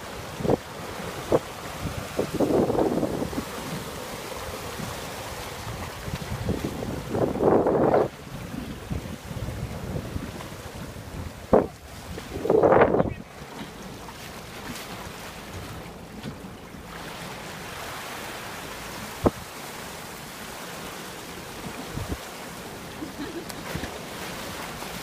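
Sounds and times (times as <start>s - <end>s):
wind buffeting microphone: 0.0s - 13.4s, 19.0s - 19.6s, 21.6s - 22.3s
waves washing over rocks: 0.0s - 25.0s.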